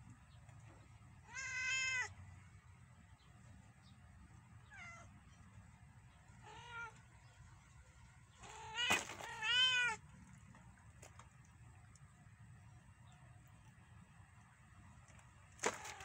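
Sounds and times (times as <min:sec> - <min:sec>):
cat meowing: 0:01.3 - 0:02.1, 0:04.7 - 0:05.1, 0:06.4 - 0:07.0, 0:08.4 - 0:10.0.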